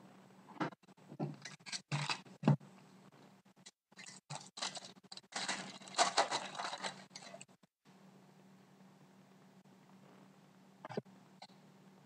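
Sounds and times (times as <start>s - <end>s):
foil wrapper crinkling: 4.0s - 7.5s.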